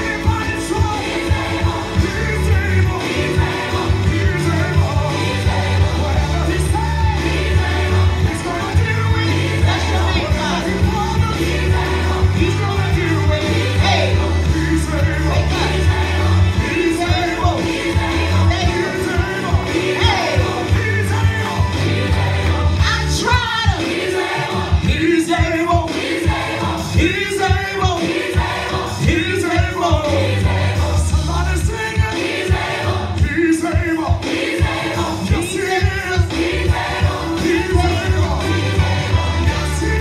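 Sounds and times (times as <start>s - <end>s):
bass: 0.0s - 40.0s
drum beat: 0.0s - 40.0s
worship singing: 0.0s - 40.0s.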